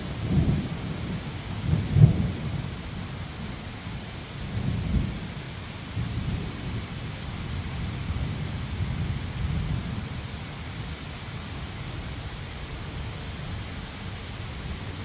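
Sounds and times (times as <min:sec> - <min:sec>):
thunder rumbling: 0:00.0 - 0:10.2
rain falling: 0:00.0 - 0:15.0.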